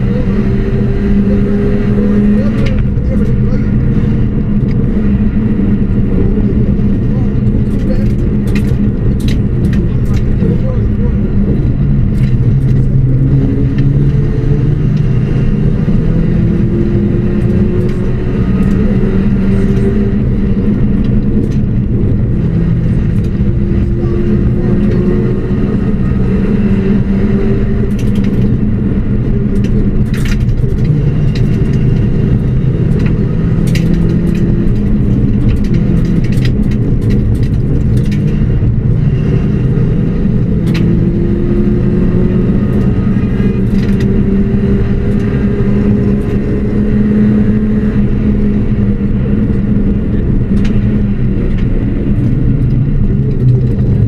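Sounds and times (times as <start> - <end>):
rally car engine running hard: 0.0 - 54.0
sharp clicks and knocks: 7.0 - 10.6, 11.4 - 15.2, 17.2 - 25.1, 26.8 - 39.6, 40.3 - 54.0.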